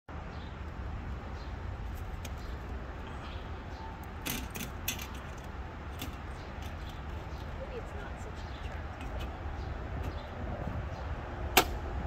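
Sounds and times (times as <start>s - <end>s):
sharp clicks on metal frame: 4.2s - 7.5s, 11.5s - 11.8s
wind rumble on microphone: 6.3s - 12.0s.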